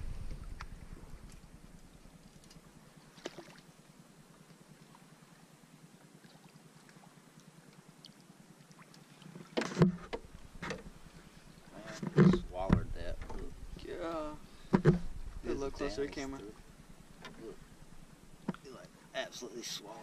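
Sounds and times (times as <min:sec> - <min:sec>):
faint water sounds: 0:00.0 - 0:20.0
handling noises in a canoe: 0:09.2 - 0:13.8, 0:14.4 - 0:15.4, 0:17.0 - 0:18.9.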